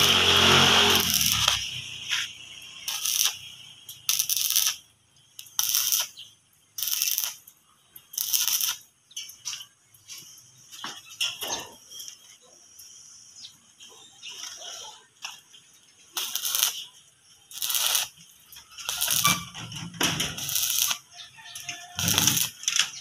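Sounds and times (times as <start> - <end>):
welding arc crackling: 0.0 - 9.1, 16.1 - 23.0.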